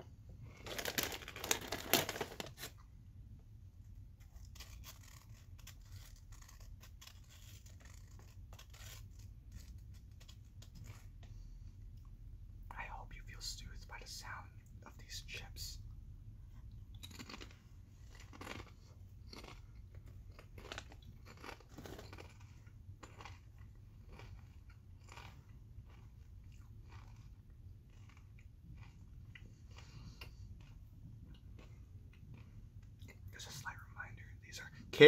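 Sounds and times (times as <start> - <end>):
person chewing crunchy chips: 0.5 - 2.7, 4.2 - 11.2, 16.9 - 33.5.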